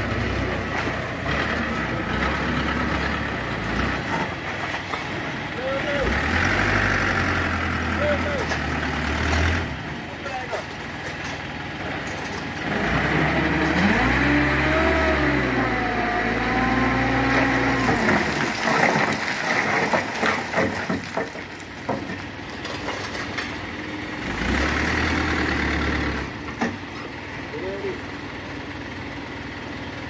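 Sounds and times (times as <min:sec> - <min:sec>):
truck engine revving: 0:00.0 - 0:10.2, 0:11.9 - 0:20.5, 0:24.1 - 0:26.6
rocks sliding and tumbling: 0:03.6 - 0:05.5, 0:17.3 - 0:23.6.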